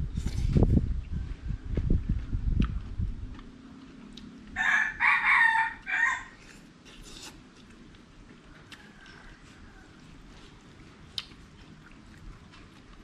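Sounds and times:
rooster crowing: 0:04.6 - 0:06.4, 0:08.5 - 0:10.2.

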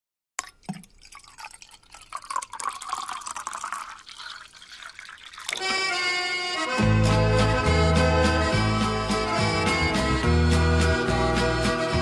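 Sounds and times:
milk pouring into glass: 0:00.4 - 0:06.7
music: 0:05.5 - 0:12.0.

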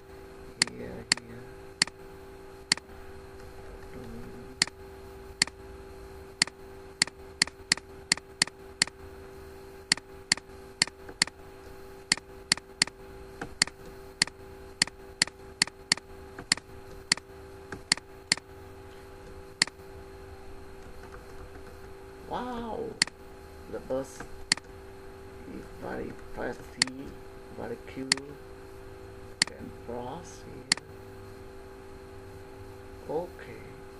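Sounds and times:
steady low hum: 0:00.0 - 0:33.9
computer mouse clicking: 0:00.6 - 0:02.0, 0:02.7 - 0:02.9, 0:06.4 - 0:09.0, 0:09.9 - 0:11.4, 0:12.1 - 0:18.5, 0:24.2 - 0:24.7, 0:26.8 - 0:27.0, 0:28.1 - 0:28.3.

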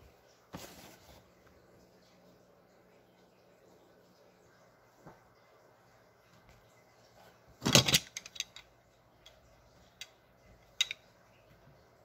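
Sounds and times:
plastic pieces knocking together: 0:07.6 - 0:08.6.

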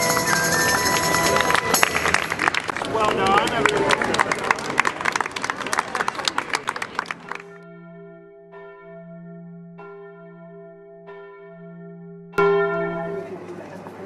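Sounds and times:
people clapping: 0:00.0 - 0:07.6
church bell tolling: 0:07.2 - 0:13.9.

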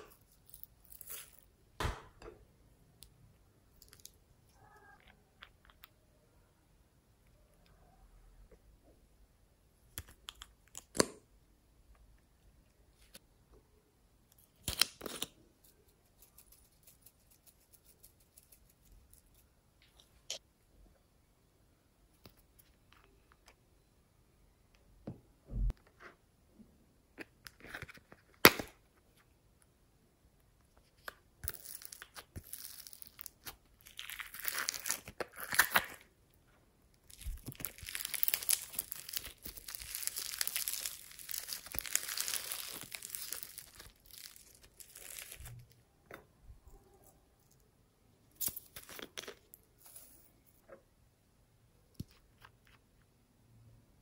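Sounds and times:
slime crackling when squeezed: 0:37.1 - 0:45.6.

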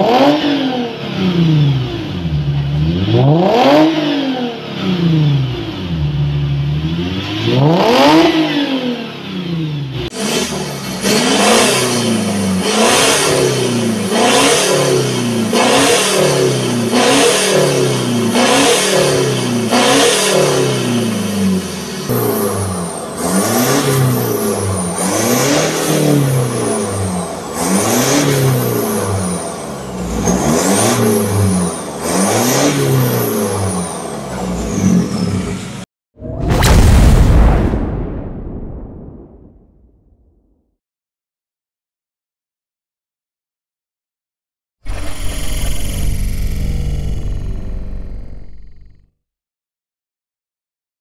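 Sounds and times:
car engine revving: 0:00.0 - 0:35.8, 0:44.9 - 0:49.0.

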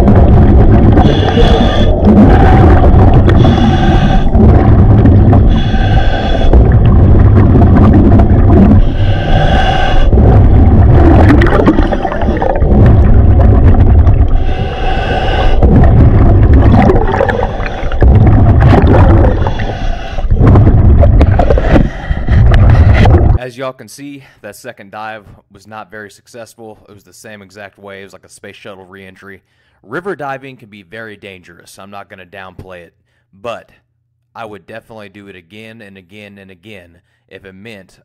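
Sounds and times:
underwater current rushing rumble: 0:00.0 - 0:23.4.

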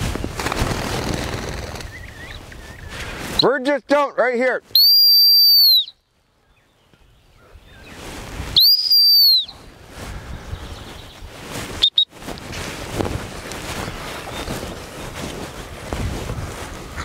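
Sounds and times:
wind and movement through grass: 0:00.0 - 0:17.0
dog whistle blasts: 0:04.8 - 0:06.0, 0:08.6 - 0:09.5, 0:11.8 - 0:12.1.

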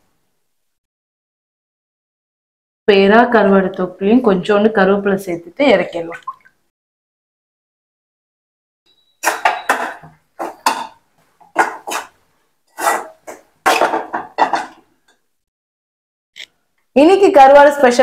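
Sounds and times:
spatula scraping a pan: 0:09.2 - 0:14.9.

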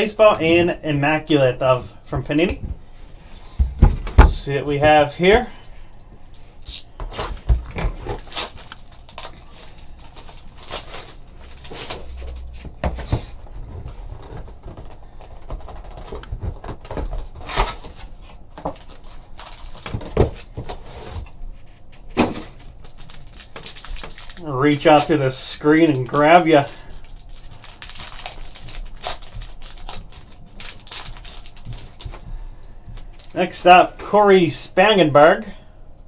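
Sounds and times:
plastic wrap and foil crinkling: 0:06.7 - 0:12.7, 0:13.6 - 0:33.8.

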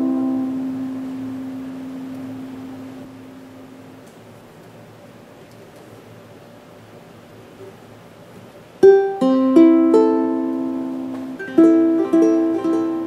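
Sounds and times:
ukulele plucked notes: 0:00.0 - 0:03.2, 0:08.8 - 0:13.0.

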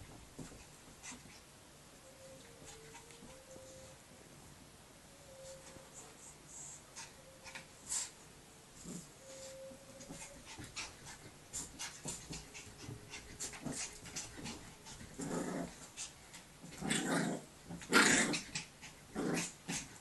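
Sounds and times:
dogs growling: 0:12.5 - 0:15.8, 0:16.7 - 0:19.9.

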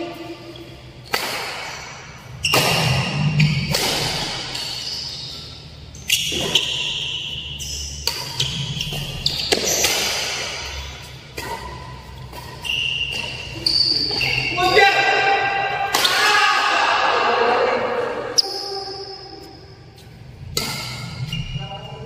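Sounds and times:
racket striking shuttlecock: 0:01.0 - 0:05.5, 0:06.1 - 0:13.6, 0:15.7 - 0:16.2, 0:20.5 - 0:21.2
shoe squeaks on court floor: 0:02.4 - 0:14.6, 0:18.4 - 0:22.0.

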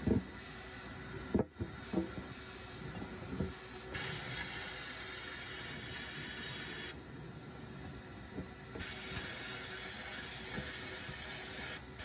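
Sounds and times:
sandblast gun hissing: 0:03.9 - 0:07.0, 0:08.8 - 0:12.0.

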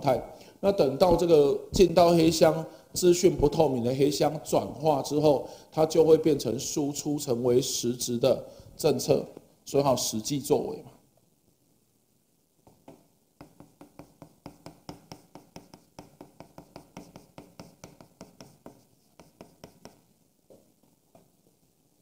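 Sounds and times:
chalk tapping and scraping on chalkboard: 0:12.7 - 0:21.5.

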